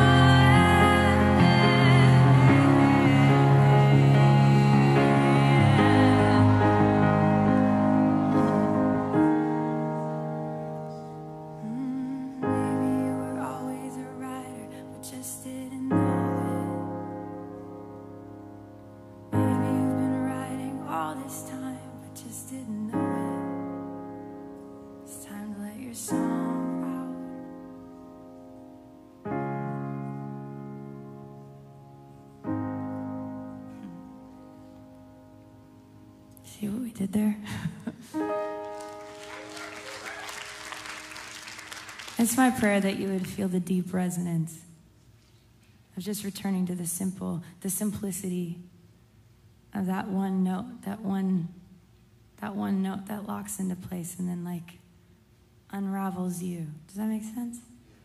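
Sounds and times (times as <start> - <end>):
piano playing sustained chords: 0.0 - 36.8, 38.0 - 43.3.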